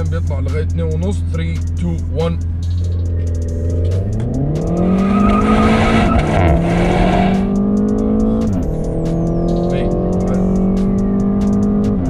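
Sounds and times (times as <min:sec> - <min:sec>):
car engine revving hard: 0:03.0 - 0:12.0.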